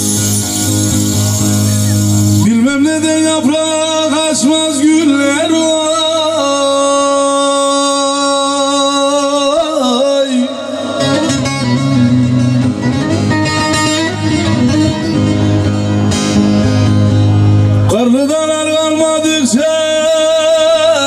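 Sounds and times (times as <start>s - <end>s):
plucked lute: 0.0s - 3.2s, 10.7s - 18.0s
steady bass: 0.0s - 7.3s, 10.4s - 21.0s
keyboard: 0.0s - 21.0s
man singing folk music: 0.0s - 21.0s.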